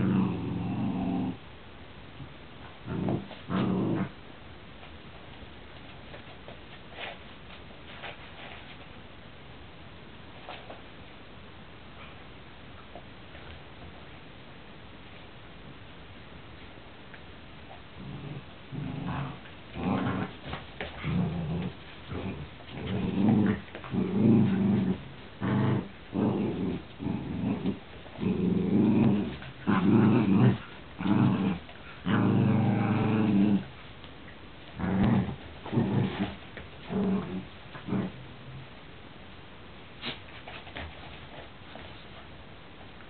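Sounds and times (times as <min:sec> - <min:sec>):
dogs growling: 0:00.0 - 0:01.4, 0:02.8 - 0:04.2, 0:18.0 - 0:33.7, 0:34.8 - 0:38.6.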